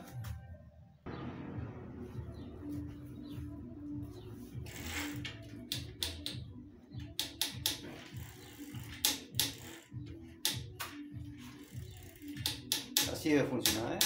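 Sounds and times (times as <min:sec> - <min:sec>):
background music with steady beat: 0:00.0 - 0:14.0
bicycle brake pads clicking: 0:04.7 - 0:06.4, 0:07.0 - 0:11.0, 0:11.6 - 0:14.0.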